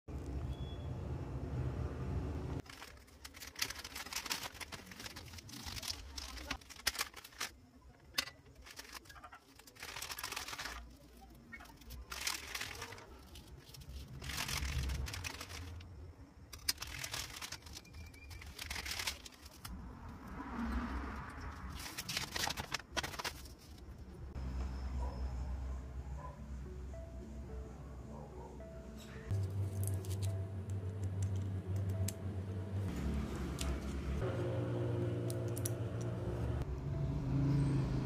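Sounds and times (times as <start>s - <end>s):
plastic bags crinkling: 2.6s - 15.9s, 16.5s - 19.8s, 21.7s - 23.9s.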